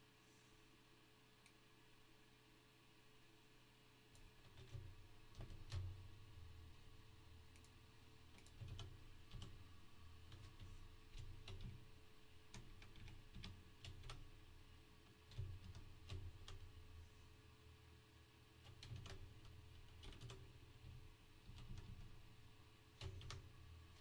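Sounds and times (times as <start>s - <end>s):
low steady hum: 0.0s - 24.0s
keyboard typing: 4.4s - 6.0s, 8.4s - 9.6s, 10.2s - 11.8s, 12.5s - 14.3s, 15.3s - 16.7s, 18.6s - 22.2s, 23.0s - 23.5s.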